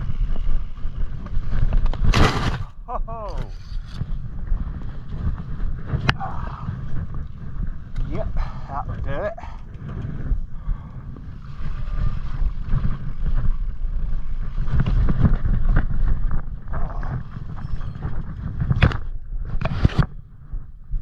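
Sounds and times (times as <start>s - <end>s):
wind buffeting microphone: 0.0s - 21.0s.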